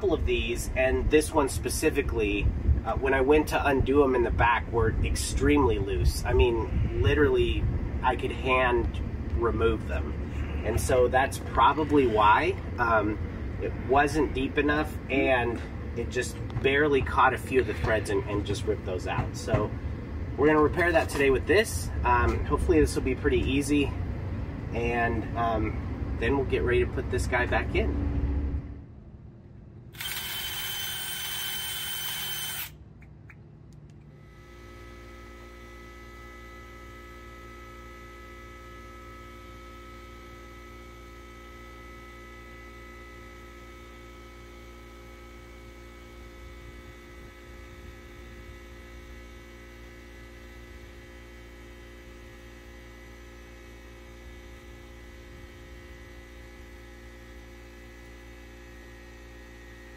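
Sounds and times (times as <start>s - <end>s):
steady electrical hum: 0.0s - 59.9s
power tool burst: 30.0s - 32.8s.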